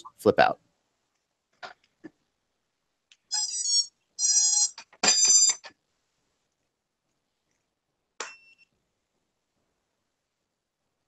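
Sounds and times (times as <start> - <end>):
short high-pitched beeps: 3.3 - 5.6.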